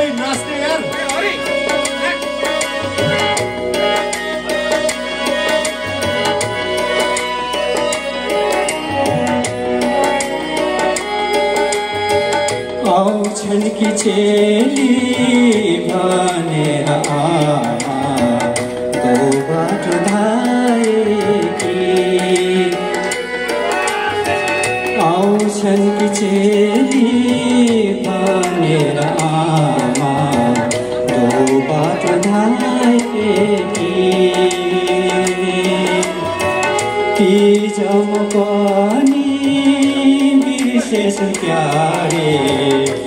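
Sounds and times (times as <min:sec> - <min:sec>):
man singing into microphone: 0:00.0 - 0:06.9, 0:11.8 - 0:43.0
drum rhythm: 0:00.0 - 0:43.0
electronic keyboard chords: 0:00.0 - 0:43.0.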